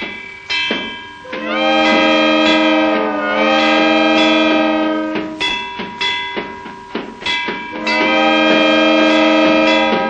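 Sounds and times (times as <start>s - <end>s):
steam locomotive chuffing: 1.2s - 10.0s
train chord whistle blast: 1.3s - 5.5s, 7.7s - 10.0s.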